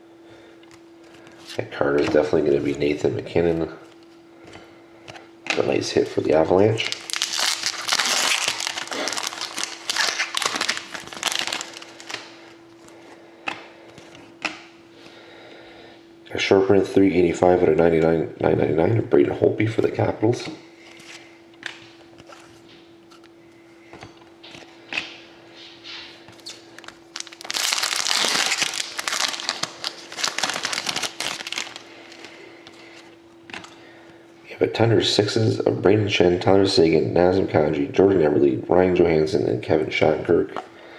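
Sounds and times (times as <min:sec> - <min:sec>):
plastic card sleeve crinkling: 0:05.5 - 0:14.6, 0:26.3 - 0:33.7.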